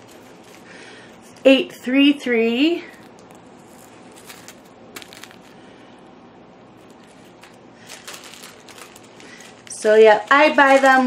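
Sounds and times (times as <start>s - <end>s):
plastic bags crinkling: 0.0s - 1.5s, 2.9s - 5.9s, 6.7s - 11.0s.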